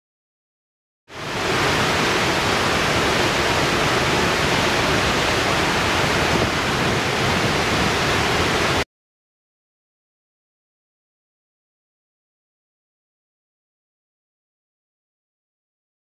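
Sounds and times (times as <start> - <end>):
waterfall rushing: 1.1 - 8.8.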